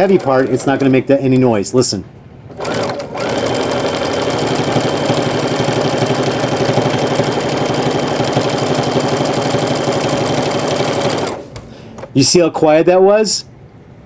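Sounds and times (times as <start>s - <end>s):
sewing machine stitching: 0.0s - 1.1s, 2.5s - 11.6s.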